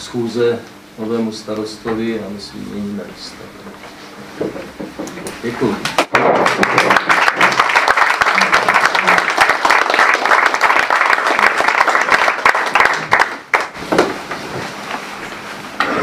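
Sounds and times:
people applauding: 6.0s - 13.8s.

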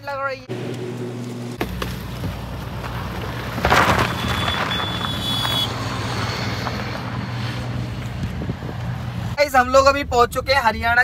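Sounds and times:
car engine running: 0.5s - 3.8s
tyre noise on gravel: 1.6s - 8.8s.

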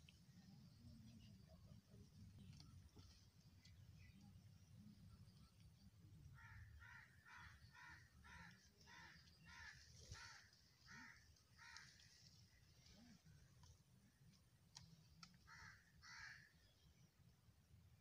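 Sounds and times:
crow cawing faintly: 6.3s - 13.3s, 15.2s - 16.6s.

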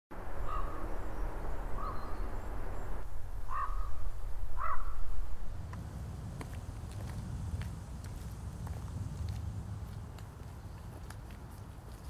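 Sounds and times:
low outdoor rumble: 0.1s - 12.0s
crow cawing: 0.4s - 0.8s, 1.8s - 2.1s, 3.5s - 4.0s, 4.6s - 5.1s.

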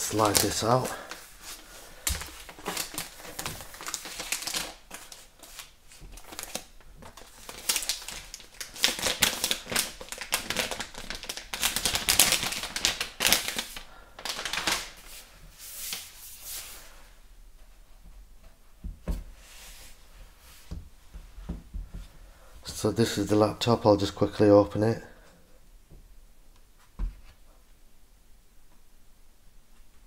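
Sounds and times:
plastic wrapping crinkling: 0.0s - 16.8s.

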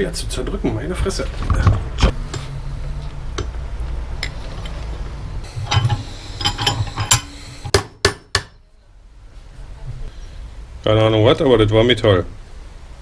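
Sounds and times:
hammer striking metal punch: 5.6s - 8.6s.

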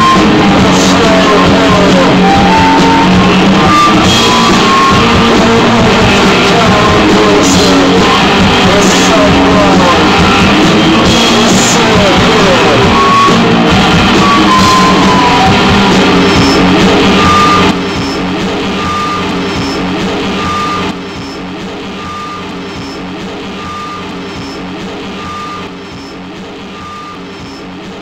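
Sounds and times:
distorted guitar drone: 0.0s - 28.0s
short high tone: 1.0s - 5.5s, 11.0s - 24.0s.

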